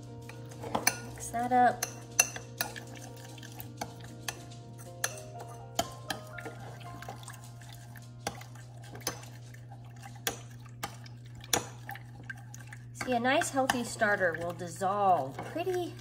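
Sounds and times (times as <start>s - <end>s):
metal spoon clinking against bowl: 0.3s - 6.6s.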